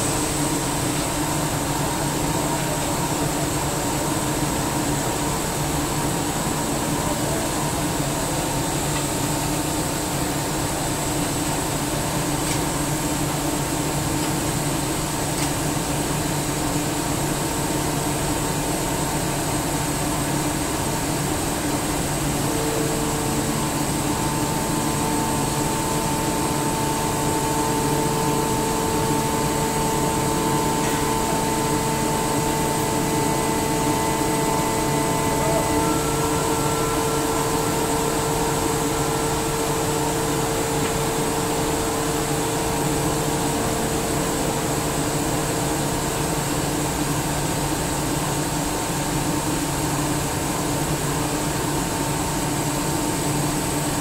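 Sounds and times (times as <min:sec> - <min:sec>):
air compressor hum and hiss: 0:00.0 - 0:54.0
faint whine tones: 0:21.7 - 0:45.3.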